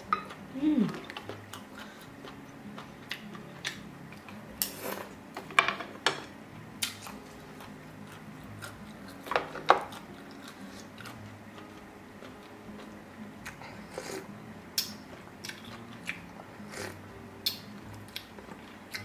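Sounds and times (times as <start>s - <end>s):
chewing and mouth sounds: 0.3s - 4.8s, 6.8s - 19.0s.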